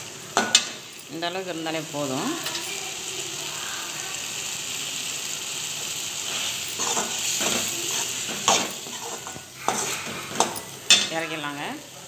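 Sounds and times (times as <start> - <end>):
food sizzling in metal pan: 0.0 - 12.0
spatula scraping pan: 6.2 - 11.4.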